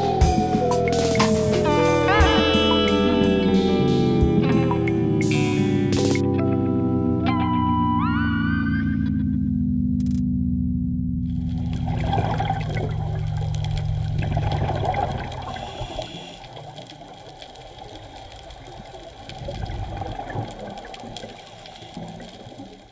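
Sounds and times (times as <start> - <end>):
underwater bubbling and rushing: 0.0 - 9.4, 11.2 - 22.9
held low musical note: 0.0 - 15.2.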